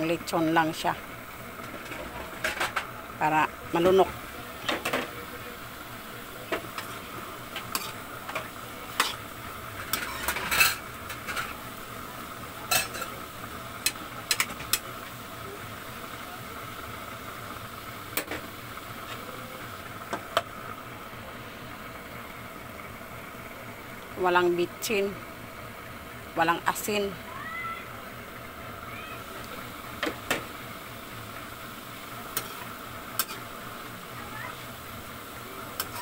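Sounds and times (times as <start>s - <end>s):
low sizzle: 0.0s - 36.0s.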